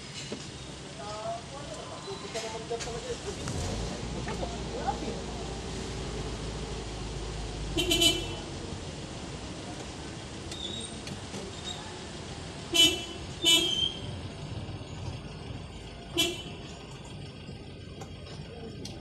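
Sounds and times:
car horn toots: 7.8 - 8.4, 12.7 - 14.0, 16.1 - 16.6.

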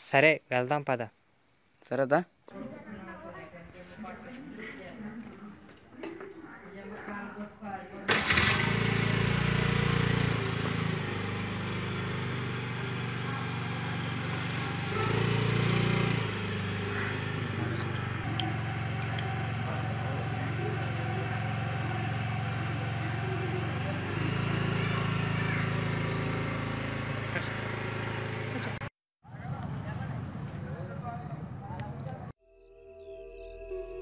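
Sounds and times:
scooter engine idling: 8.0 - 32.3
scooter engine revving: 8.1 - 32.3.

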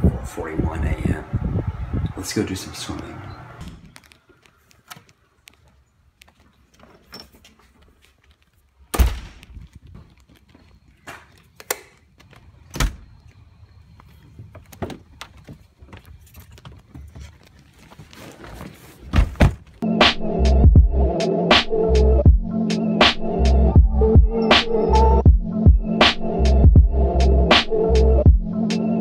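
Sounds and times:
doors shutting with thunks: 8.9 - 9.5, 12.6 - 13.2, 19.0 - 19.8.

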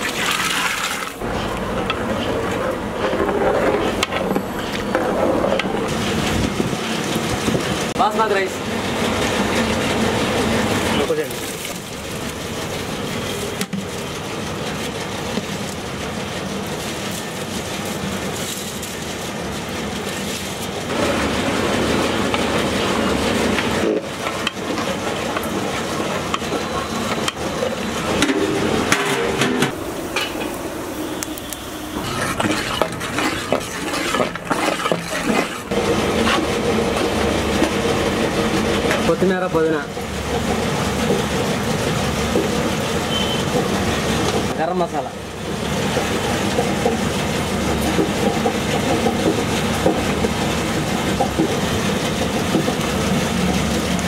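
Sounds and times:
metal ladle scraping pot: 0.0 - 6.4, 31.3 - 36.6
broth bubbling: 30.6 - 37.5.

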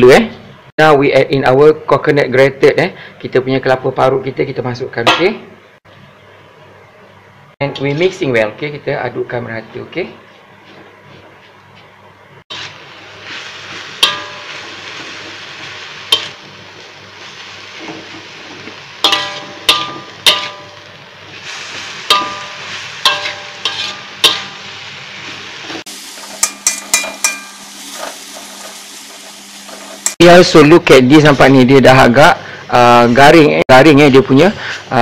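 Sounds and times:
food sizzling: 10.3 - 33.4
spatula scraping a steel wok: 12.5 - 16.4, 21.4 - 30.2
ringing metal strikes: 14.0 - 14.7, 19.0 - 21.0, 22.1 - 24.8, 26.4 - 27.7.

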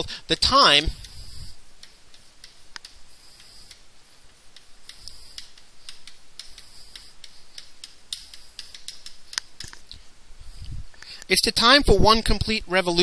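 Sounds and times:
chalk writing on blackboard: 1.0 - 9.8.

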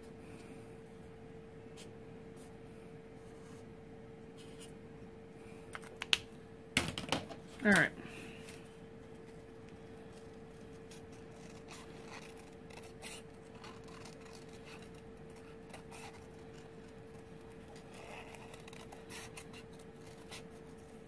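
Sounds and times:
faint hum: 0.0 - 21.0
scissors snipping paper: 10.8 - 20.6.

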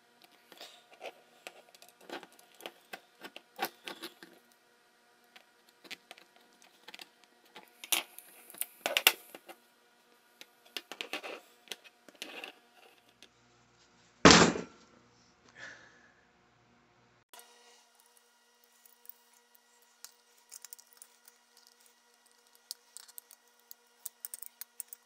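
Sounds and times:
tools clicking and scraping: 10.4 - 13.3, 17.9 - 25.0.

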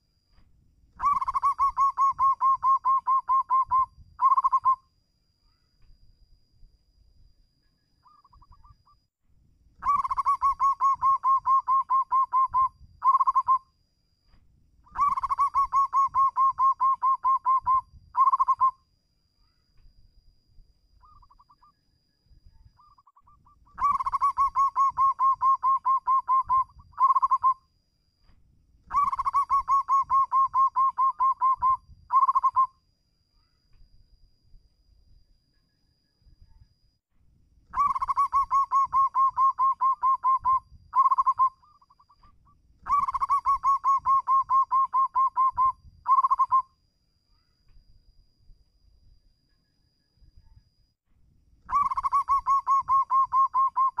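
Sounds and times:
dove cooing: 1.0 - 4.8, 9.8 - 13.6, 14.9 - 18.7, 22.8 - 27.6, 28.9 - 32.7, 37.8 - 42.1, 42.8 - 46.6, 51.7 - 54.0.

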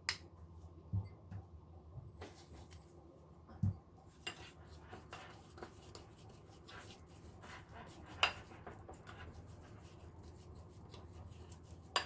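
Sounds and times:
spoon scraping ceramic bowl: 4.2 - 12.0.

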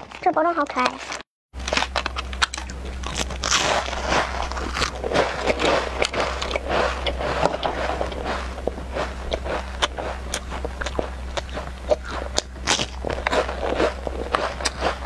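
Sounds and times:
plastic packaging crinkling: 0.0 - 11.1.

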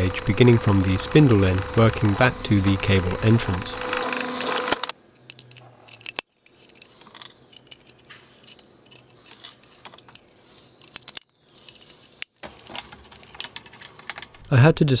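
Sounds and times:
drill press cutting metal: 0.0 - 4.9
metal piece clicking and scraping: 4.3 - 14.4.

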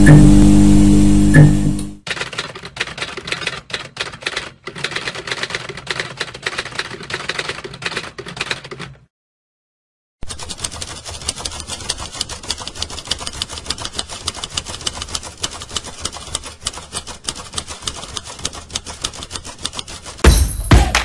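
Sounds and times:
low steady hum: 0.0 - 2.0
typewriter keys clacking: 2.1 - 9.1, 10.2 - 21.0.

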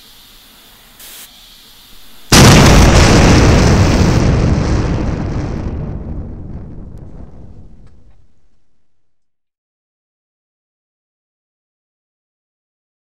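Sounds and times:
floor pump hiss: 0.0 - 2.4.

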